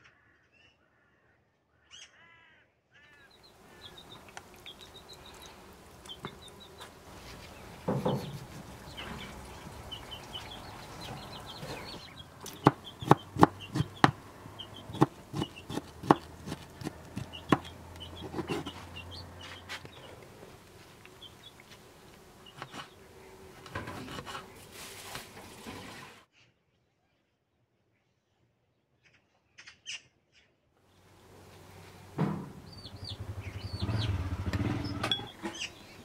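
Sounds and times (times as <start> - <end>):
knife chopping on cutting board: 12.4 - 14.2, 14.9 - 18.7.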